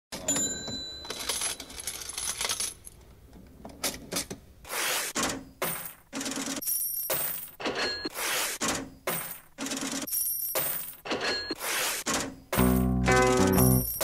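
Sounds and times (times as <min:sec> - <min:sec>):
coins dropping and clinking: 0:01.0 - 0:03.0, 0:05.6 - 0:07.9, 0:12.6 - 0:14.0.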